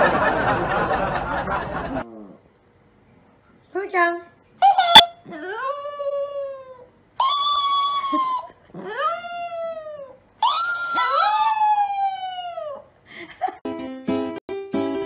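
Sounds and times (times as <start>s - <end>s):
small dog howling: 4.6s - 12.9s.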